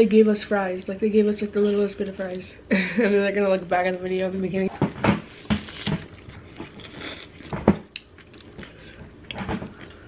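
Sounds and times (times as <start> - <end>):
people chewing crunchy food: 4.8 - 10.0.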